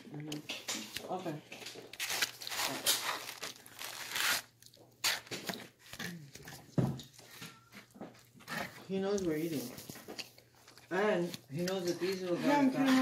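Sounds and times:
packaging tearing and crinkling: 0:01.6 - 0:06.5.

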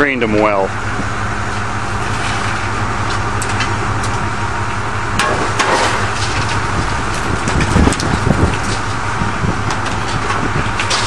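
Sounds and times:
diesel engine running: 0:00.0 - 0:11.0
metal clanks and knocks: 0:05.2 - 0:09.0, 0:09.6 - 0:11.0.

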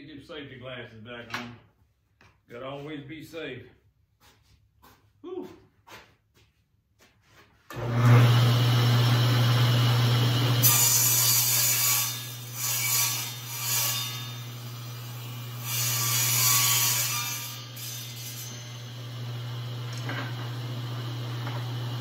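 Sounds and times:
saw blade cutting wood: 0:07.7 - 0:22.0
table saw motor humming: 0:07.7 - 0:22.0.

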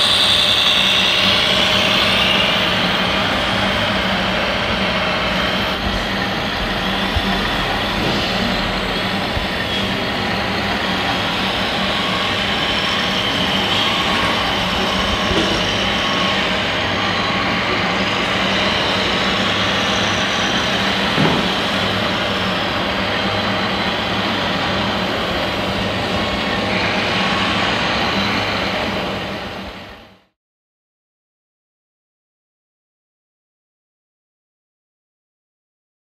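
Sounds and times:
model machines mechanical drone: 0:00.0 - 0:30.2.

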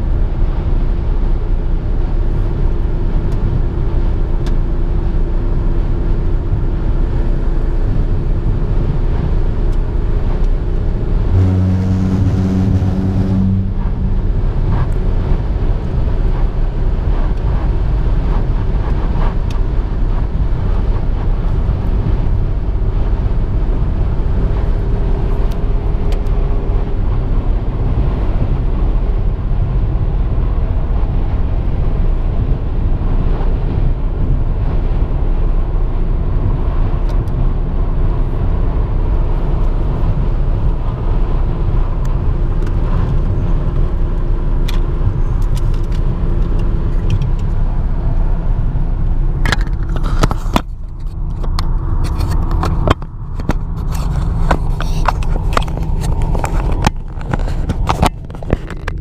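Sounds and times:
droning hum: 0:00.0 - 0:36.6
tyre and engine rumble: 0:00.0 - 0:59.0
sharp clicks and knocks: 0:49.4 - 0:59.0.

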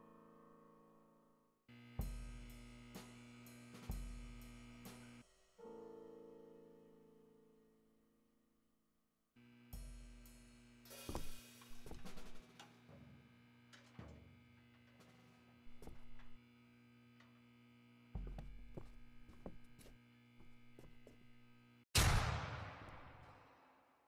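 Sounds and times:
steady low hum: 0:09.5 - 0:12.4, 0:13.4 - 0:21.8
soft thuds and clicks: 0:18.2 - 0:21.3.

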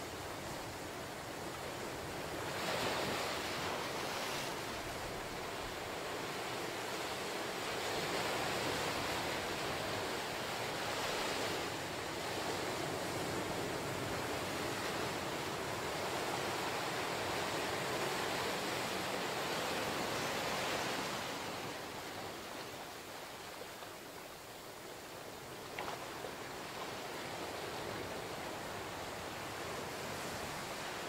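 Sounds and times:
ocean surf breaking on rocks: 0:00.2 - 0:23.5.

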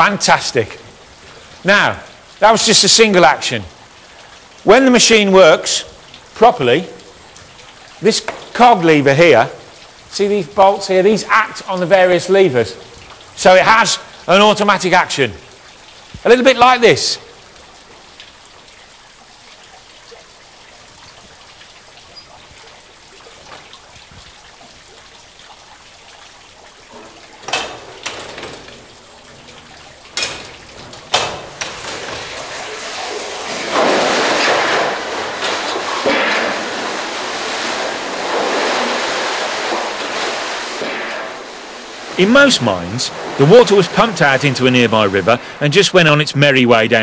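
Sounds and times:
water gushing and splashing: 0:00.0 - 0:47.0.

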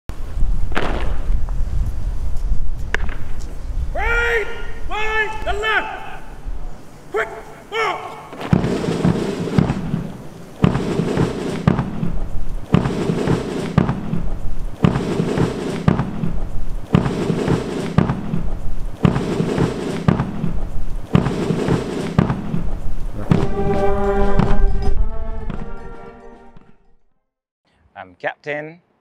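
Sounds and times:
music with booming percussive hits: 0:08.5 - 0:25.8.

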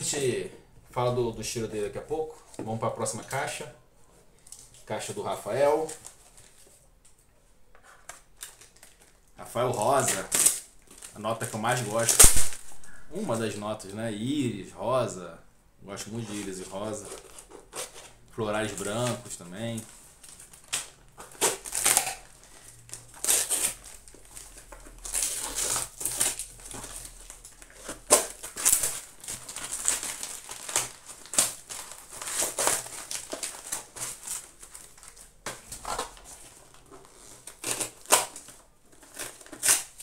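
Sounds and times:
packaging crinkling: 0:07.9 - 0:13.5, 0:16.2 - 0:40.0.

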